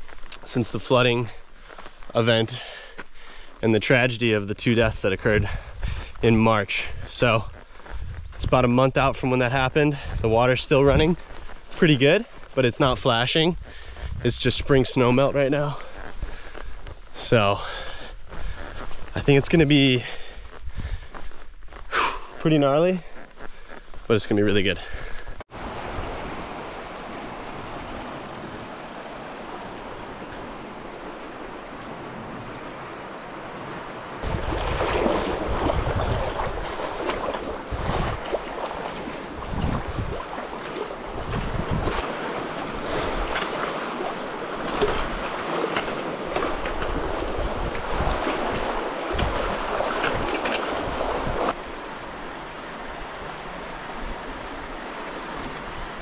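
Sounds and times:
wind buffeting microphone: 5.2s - 8.6s, 13.4s - 14.9s, 25.3s - 51.6s
river water rushing: 25.5s - 56.0s.

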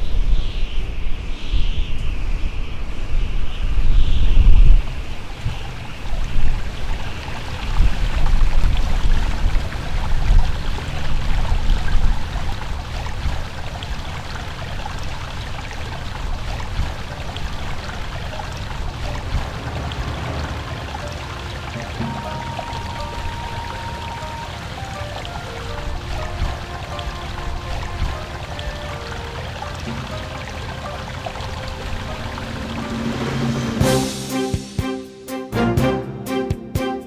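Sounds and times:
wind rumbling on microphone: 0.0s - 33.8s
water rushing over rocks: 4.9s - 34.0s.

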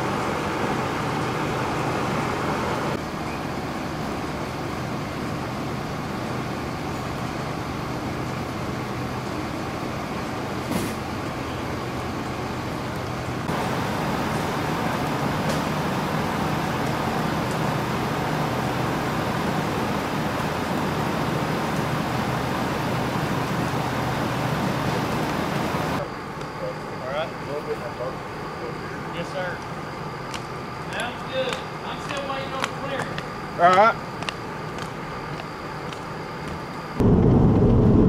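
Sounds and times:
constant hiss: 12.3s - 36.9s.

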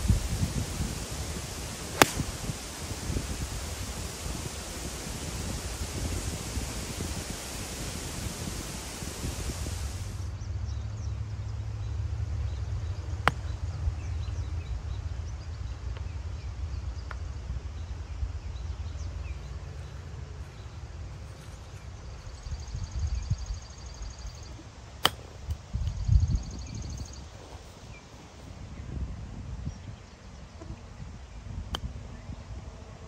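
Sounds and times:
wind rumble on microphone: 0.0s - 33.0s
golf club striking ball: 0.2s - 6.5s, 25.0s - 25.6s.

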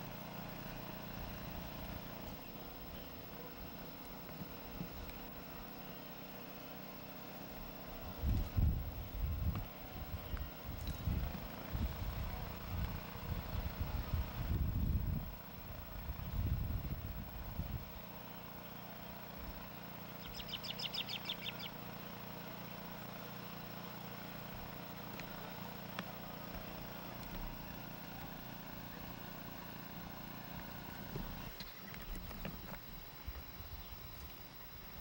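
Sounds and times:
low background hum: 0.0s - 35.0s
bird trilling: 20.2s - 21.8s
faint clicks and rustles: 24.1s - 34.8s.

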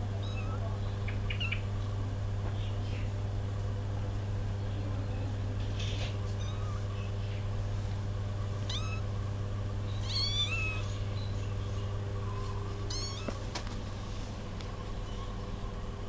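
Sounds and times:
steady low hum: 0.0s - 16.0s
kittens mewing: 5.8s - 7.4s, 8.6s - 9.2s, 9.9s - 13.6s.

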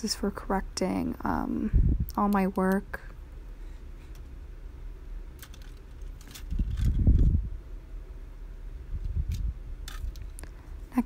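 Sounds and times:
plastic pens clicking and rattling: 5.4s - 7.3s, 9.3s - 10.5s.

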